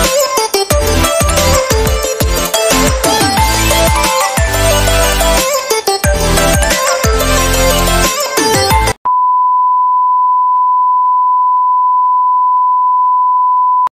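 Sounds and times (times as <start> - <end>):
electronic music: 0.0 - 9.0.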